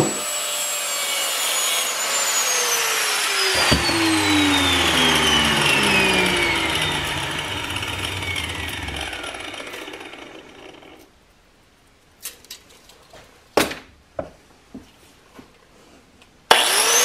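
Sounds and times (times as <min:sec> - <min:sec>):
angle grinder whine winding down: 0:00.0 - 0:11.1, 0:16.5 - 0:17.0.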